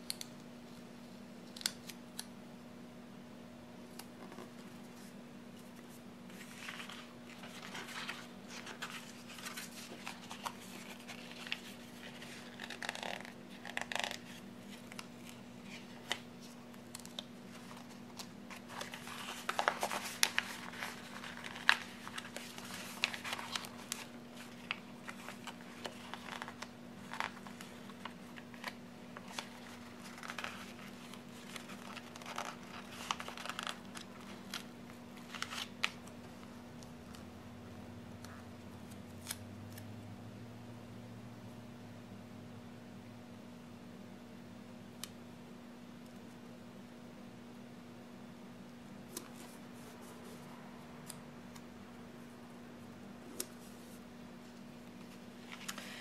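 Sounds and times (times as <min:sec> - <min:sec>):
faint steady hum: 0:00.0 - 0:56.0
sticker book pages rustling: 0:05.7 - 0:37.2.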